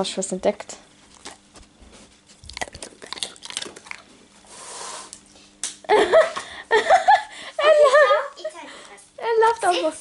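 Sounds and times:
dog chewing: 0.9s - 4.5s.

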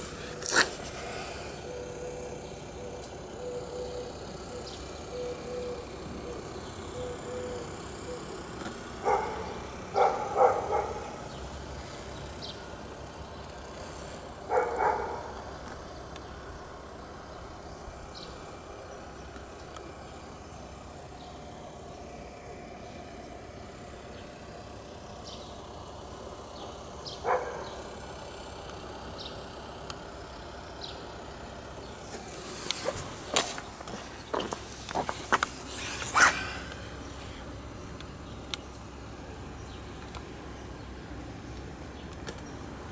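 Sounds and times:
low background hum: 0.0s - 42.9s
dog barking: 9.0s - 11.1s, 14.5s - 15.3s, 27.2s - 27.8s.

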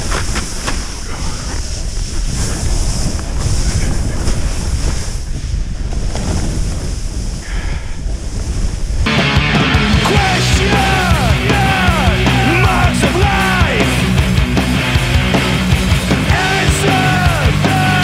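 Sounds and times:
sliding on snow: 0.0s - 9.1s
wind buffeting microphone: 0.0s - 9.2s
heavy rock music: 9.1s - 18.0s.

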